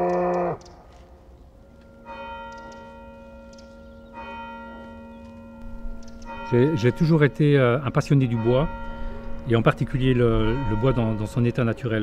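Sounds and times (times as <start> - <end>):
church bell tolling: 1.6 - 12.0.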